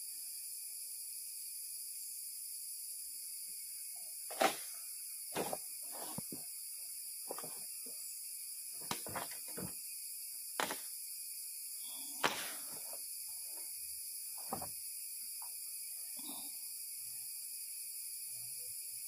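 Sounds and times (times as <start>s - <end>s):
insects high-pitched hiss: 0.0s - 19.0s
close knocks and rustles: 4.3s - 4.7s, 5.4s - 6.4s, 7.3s - 7.6s, 8.8s - 9.8s, 10.6s - 10.8s, 12.2s - 13.6s, 14.4s - 14.8s.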